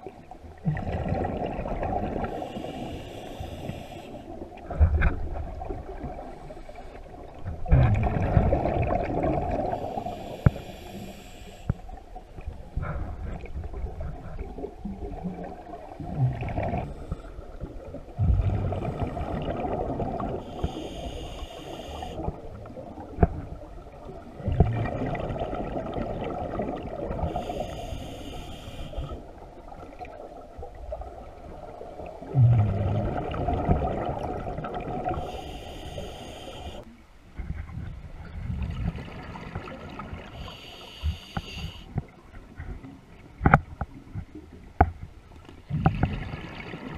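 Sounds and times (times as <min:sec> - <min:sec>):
exhaled bubbles gurgling: 0:00.0 - 0:11.6, 0:12.4 - 0:36.9, 0:45.7 - 0:46.9
regulator inhalation hiss: 0:02.3 - 0:04.4, 0:09.7 - 0:11.8, 0:20.4 - 0:22.2, 0:27.3 - 0:29.2, 0:35.1 - 0:36.9, 0:40.4 - 0:41.9.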